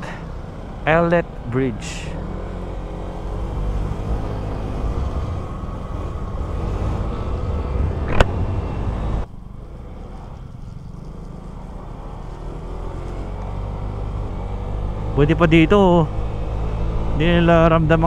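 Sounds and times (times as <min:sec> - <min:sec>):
wind and road rush: 0:00.0 - 0:18.0
scooter engine running: 0:08.6 - 0:15.1.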